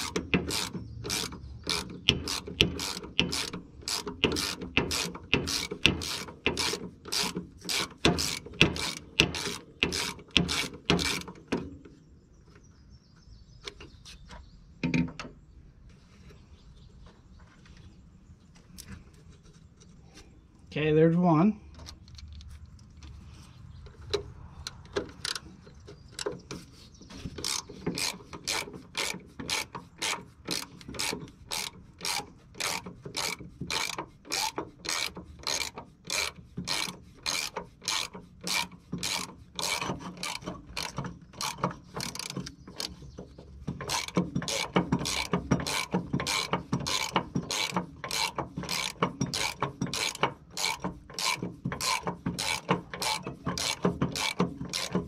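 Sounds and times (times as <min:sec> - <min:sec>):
ratchet pawl clicking: 0:00.0 - 0:11.4, 0:27.4 - 0:43.0, 0:43.8 - 0:55.0.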